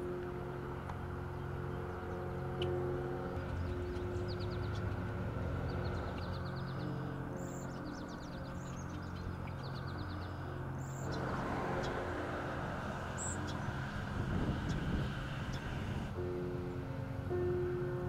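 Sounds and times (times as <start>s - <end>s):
songbirds trilling: 0.0s - 17.0s
low mechanical hum: 0.0s - 18.0s
rushing noise: 10.9s - 16.2s.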